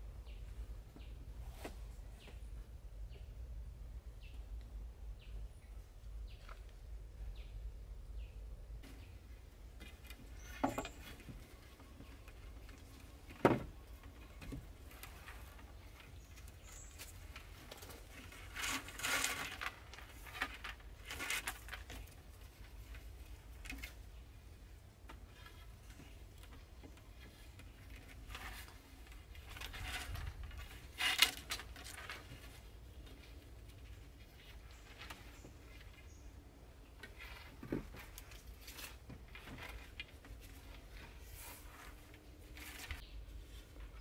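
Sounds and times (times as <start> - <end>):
rustling and scraping: 0.3 - 3.2, 8.2 - 44.0.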